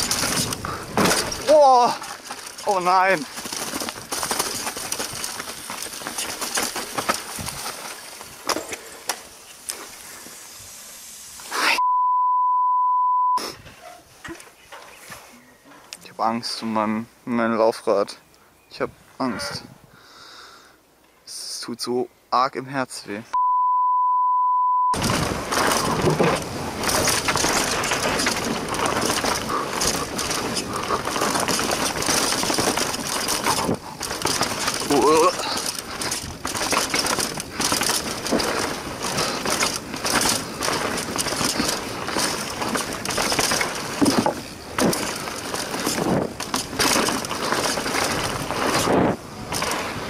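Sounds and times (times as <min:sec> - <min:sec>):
bike knocking and rattling: 0:00.0 - 0:10.0, 0:25.0 - 0:50.0
bike tyres rolling on dirt trail: 0:00.0 - 0:11.8, 0:25.0 - 0:50.0
loud electronic beep: 0:11.8 - 0:13.4, 0:23.4 - 0:25.0.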